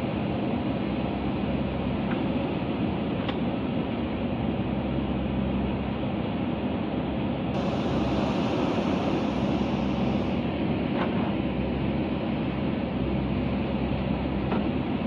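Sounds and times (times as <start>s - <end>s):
diesel engine running under load: 7.6s - 15.0s.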